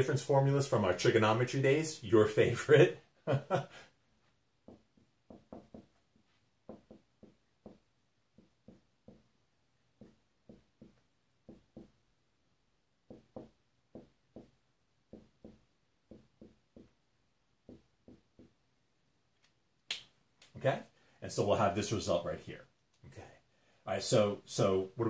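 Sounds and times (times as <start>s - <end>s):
marker tapping on whiteboard: 4.6s - 12.0s, 13.0s - 17.0s, 17.6s - 18.6s.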